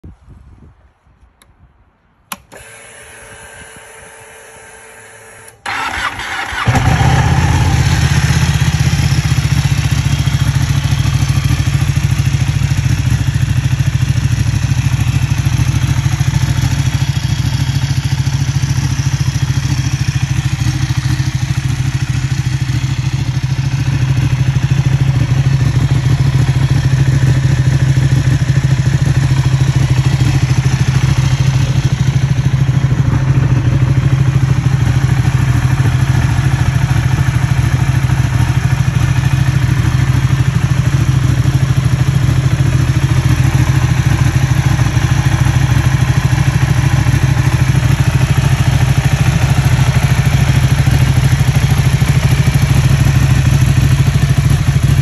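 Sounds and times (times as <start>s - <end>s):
ignition key click: 2.3s - 3.3s
fuel pump priming hum: 2.3s - 6.8s
starter cranking: 5.6s - 7.9s
motorcycle engine idling loudly: 5.6s - 55.0s.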